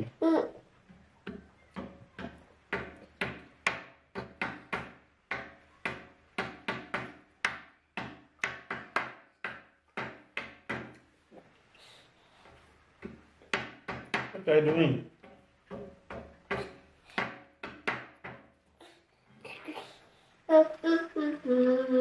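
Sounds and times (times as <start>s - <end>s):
sharp knocks on hard surface: 1.2s - 11.0s, 13.0s - 18.6s.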